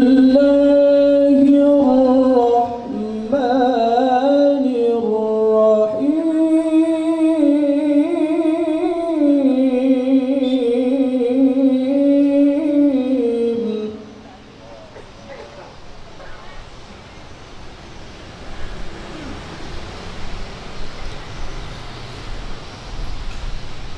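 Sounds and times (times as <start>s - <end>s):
man chanting melodic recitation: 0.0s - 15.0s.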